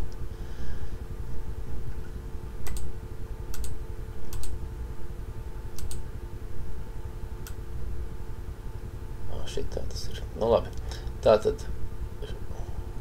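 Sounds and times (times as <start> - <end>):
steady low hum: 0.0 - 13.0
computer mouse clicking: 2.6 - 2.9, 3.5 - 4.6, 5.7 - 6.0.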